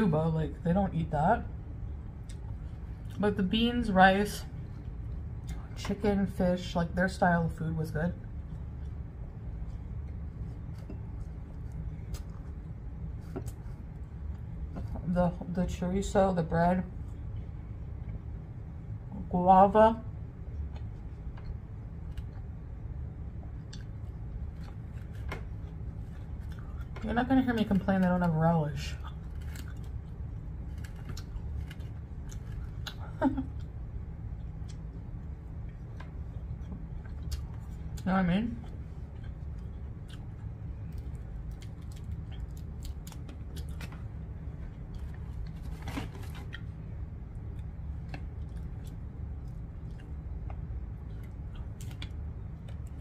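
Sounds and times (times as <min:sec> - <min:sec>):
steady low hum: 0:00.0 - 0:53.0
quiet chewing: 0:23.4 - 0:27.0, 0:29.0 - 0:53.0.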